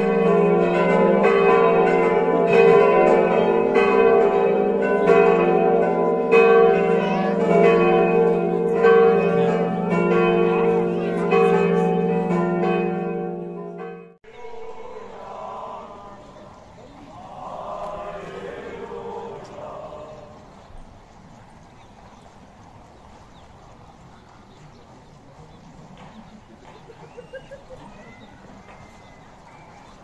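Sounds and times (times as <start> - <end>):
church bells pealing: 0.0 - 16.7.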